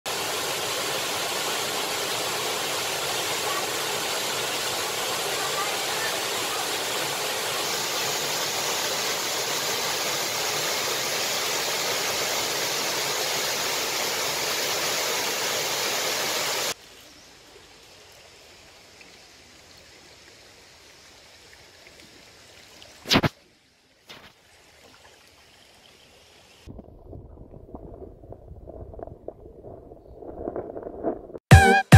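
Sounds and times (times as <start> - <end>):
stream running water: 0.0 - 30.6
waterfall rushing: 0.1 - 16.8
sharp loud click: 23.1 - 23.3.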